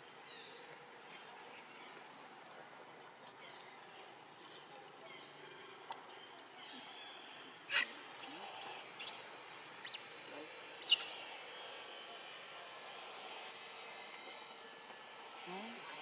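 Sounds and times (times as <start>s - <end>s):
monkey squeaking: 7.7s - 8.4s, 10.8s - 11.1s.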